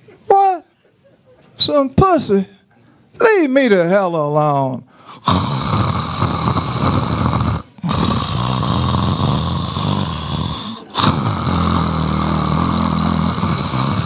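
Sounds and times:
man imitating snoring: 5.1s - 14.0s.

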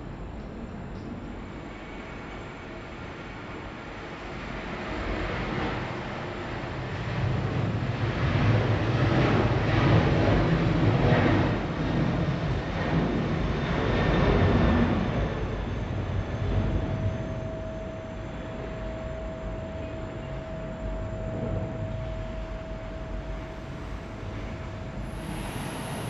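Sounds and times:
jet engines rushing: 0.1s - 26.0s.

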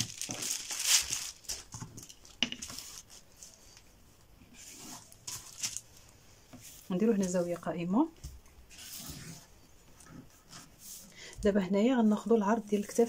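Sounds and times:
paper rustling and crinkling: 0.0s - 3.9s, 4.6s - 6.0s.

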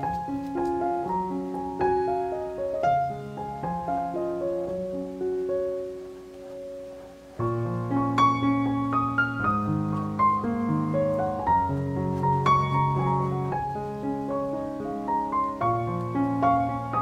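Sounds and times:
soft piano music: 0.0s - 17.0s.

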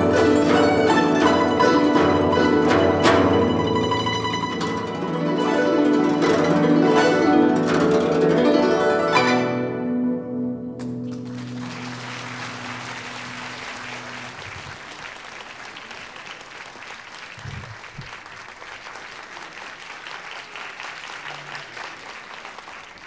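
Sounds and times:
plucked string ensemble notes: 0.0s - 14.8s
audience applauding: 10.8s - 23.0s.

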